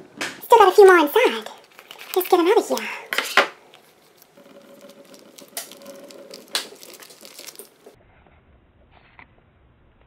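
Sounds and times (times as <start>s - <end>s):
plastic toy crinkling and rubbing: 0.5s - 8.0s.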